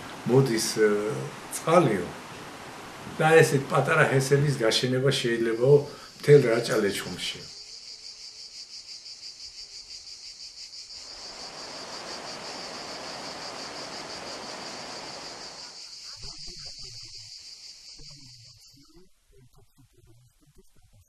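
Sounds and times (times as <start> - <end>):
insects trilling: 0.0 - 21.0
soft rushing noise: 11.1 - 15.8.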